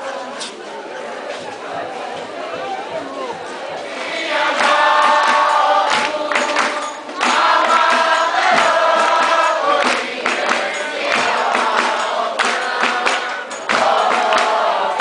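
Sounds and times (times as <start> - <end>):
group of people singing: 3.5 - 15.0
hand-clapping: 4.0 - 15.0.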